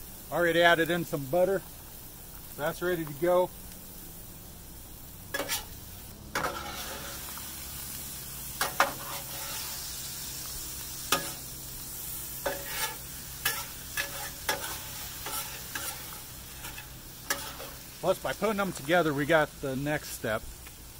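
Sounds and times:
food sizzling on a griddle: 0.0 - 20.9
metal spatulas scraping steel: 5.3 - 5.8, 6.4 - 7.2, 8.6 - 9.8, 11.1 - 11.4, 12.4 - 17.8.

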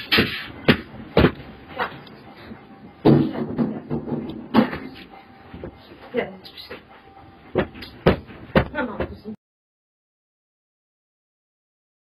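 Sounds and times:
doors and fittings rattling and banging: 3.0 - 5.8.

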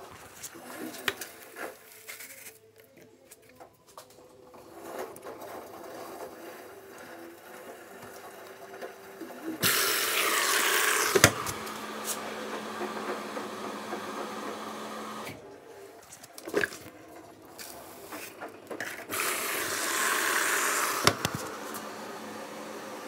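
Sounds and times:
washing machine whirring: 4.2 - 23.0
water rushing into drawer: 9.6 - 12.2, 18.8 - 21.6.

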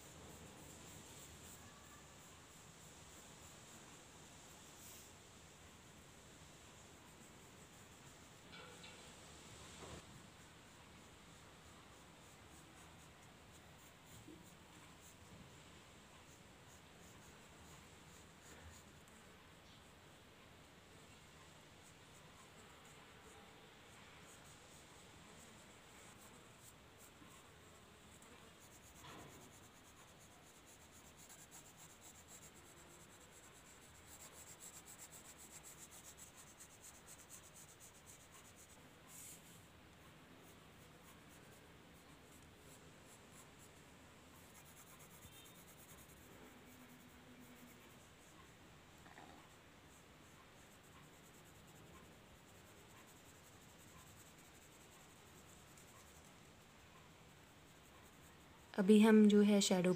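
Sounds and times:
pencil scratching on paper: 0.0 - 3.3, 11.6 - 20.0, 21.0 - 59.9.

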